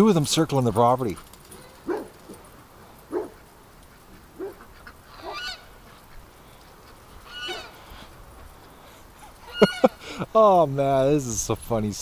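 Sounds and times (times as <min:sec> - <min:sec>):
geese honking: 0:03.1 - 0:10.2.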